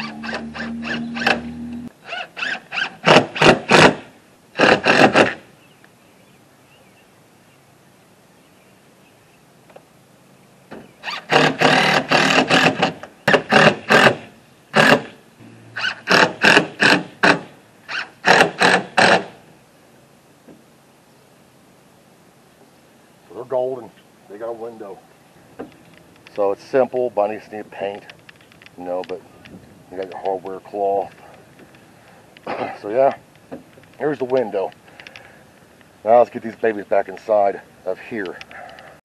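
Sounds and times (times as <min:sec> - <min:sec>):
cordless drill driving screws: 0:00.0 - 0:01.5, 0:02.1 - 0:04.0, 0:04.6 - 0:05.4, 0:11.0 - 0:15.1, 0:15.8 - 0:19.3.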